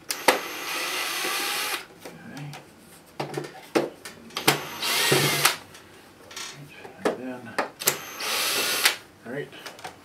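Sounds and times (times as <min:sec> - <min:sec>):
cordless drill spinning screws: 0:00.1 - 0:01.8, 0:04.4 - 0:05.6, 0:07.8 - 0:09.0.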